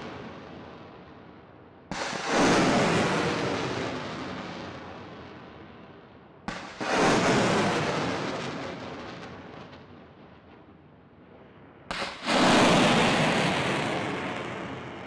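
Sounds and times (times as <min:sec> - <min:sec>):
rocket launch blast and roar: 0:01.9 - 0:05.1, 0:06.5 - 0:09.8, 0:11.9 - 0:15.0.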